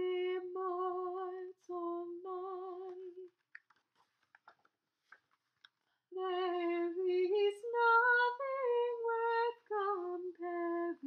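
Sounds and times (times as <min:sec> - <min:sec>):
woman singing a hymn: 0:00.0 - 0:03.3, 0:06.2 - 0:11.0.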